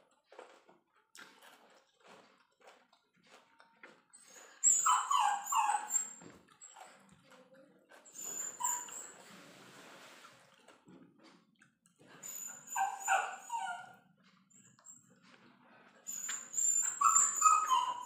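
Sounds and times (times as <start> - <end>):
soft chewing and mouth clicks: 0.0 - 4.6, 6.0 - 12.7, 13.4 - 17.3
dog whining: 4.6 - 6.8, 8.1 - 9.2, 12.2 - 14.0, 16.1 - 18.0.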